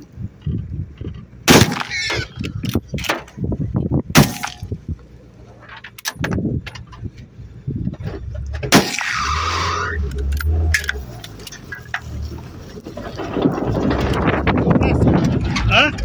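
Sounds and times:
gunshots: 1.5s - 2.2s, 4.2s - 4.6s, 8.7s - 9.7s
thumps and rustling: 10.1s - 16.0s.

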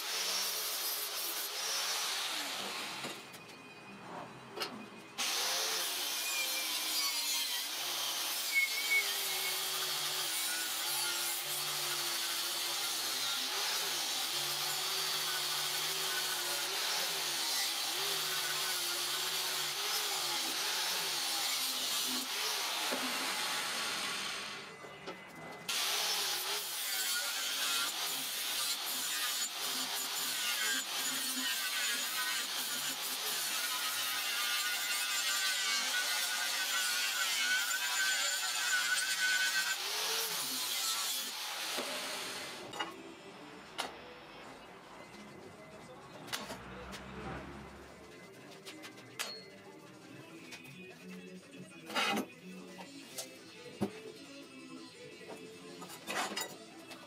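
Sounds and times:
angle grinder cutting steel: 0.0s - 3.3s, 5.2s - 24.8s, 25.7s - 43.0s.

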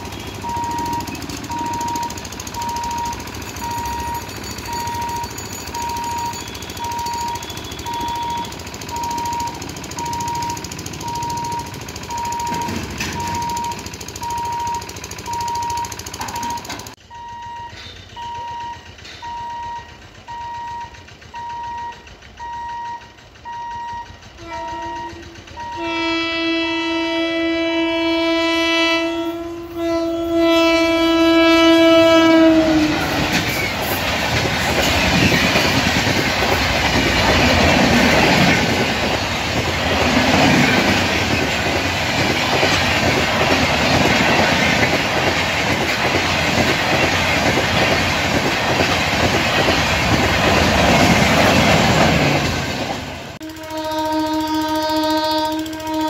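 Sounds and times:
train wheels clickety-clack: 0.0s - 17.0s, 17.6s - 56.0s
passing train rumble: 0.0s - 56.0s
electronic beeping: 0.1s - 23.0s
locomotive horn blast: 24.4s - 33.4s, 53.4s - 56.0s.

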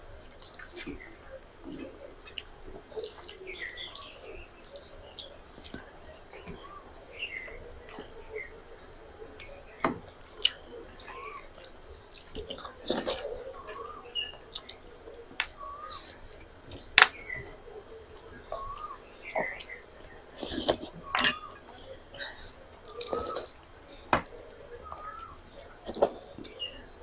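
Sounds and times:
faint bird chirps: 0.0s - 27.0s
chewing and mouth sounds: 7.4s - 24.1s.

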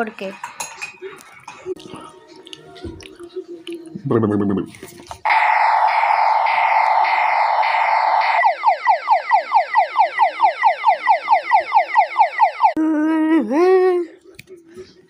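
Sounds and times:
electronic alarm siren: 5.3s - 12.8s.

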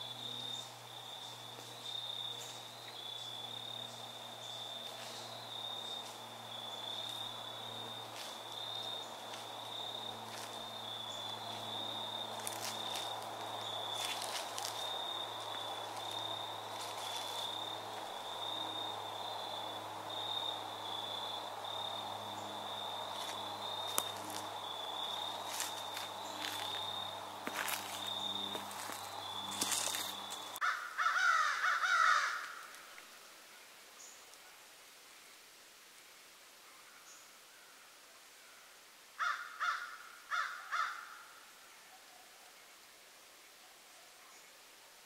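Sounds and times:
high-pitched insect trill: 0.0s - 30.6s
footsteps crunching through dry leaves: 4.4s - 18.6s, 22.6s - 30.7s.

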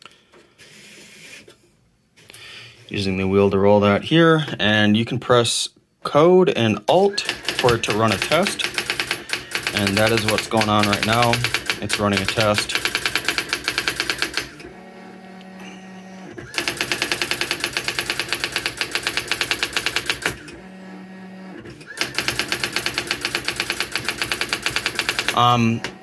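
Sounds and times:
typewriter striking: 7.2s - 14.5s, 16.5s - 20.4s, 22.0s - 25.7s.

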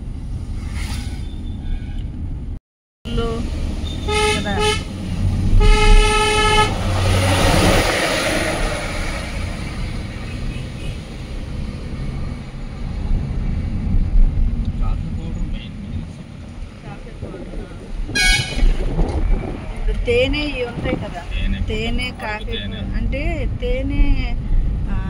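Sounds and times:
road and engine rumble: 0.0s - 25.0s
vehicle horn honking: 3.9s - 4.9s, 5.6s - 6.8s, 18.1s - 18.8s
rushing noise: 4.9s - 16.0s, 16.9s - 23.3s.

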